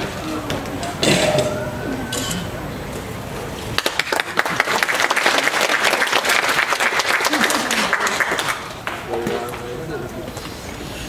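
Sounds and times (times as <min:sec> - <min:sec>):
audience applauding: 0:03.7 - 0:09.6.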